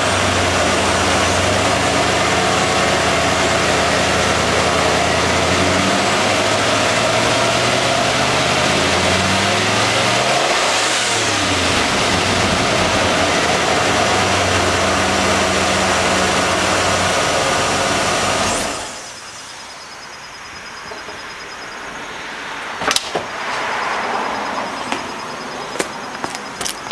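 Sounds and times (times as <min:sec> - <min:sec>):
engine idling: 0:00.0 - 0:19.4.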